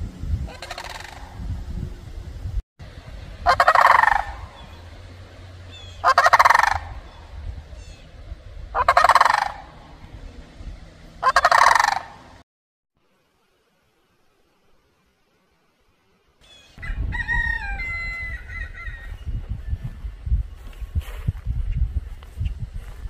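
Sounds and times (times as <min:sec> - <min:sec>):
turkey gobbling: 0:00.5 - 0:01.4, 0:03.4 - 0:04.6, 0:05.8 - 0:07.0, 0:08.7 - 0:09.8, 0:11.2 - 0:12.2.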